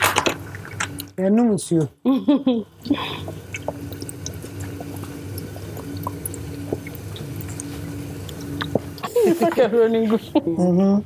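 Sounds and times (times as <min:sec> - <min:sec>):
steady low hum: 0:00.0 - 0:11.0
liquid clicks and drips: 0:00.3 - 0:01.2, 0:03.2 - 0:09.1.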